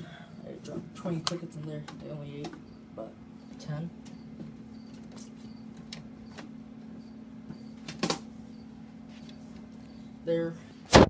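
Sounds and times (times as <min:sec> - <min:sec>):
low steady hum: 0:00.0 - 0:11.0
crickets chirping: 0:01.5 - 0:10.2.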